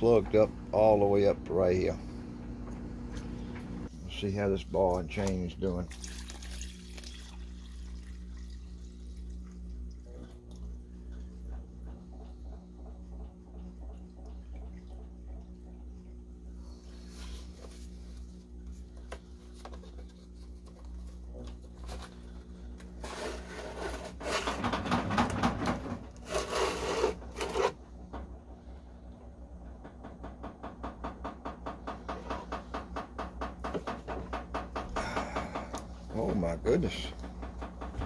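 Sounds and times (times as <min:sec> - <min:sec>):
metal rubbing and scraping: 0:23.0 - 0:27.8.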